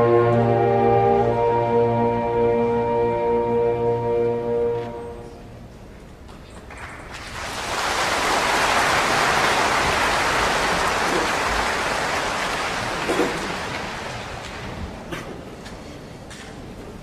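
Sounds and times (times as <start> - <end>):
audience applauding: 7.1 - 15.1.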